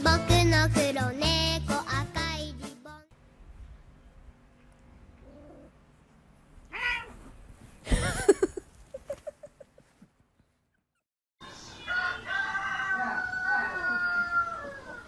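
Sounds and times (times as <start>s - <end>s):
faint rustling: 4.5s - 10.8s
cat meowing: 6.7s - 7.2s.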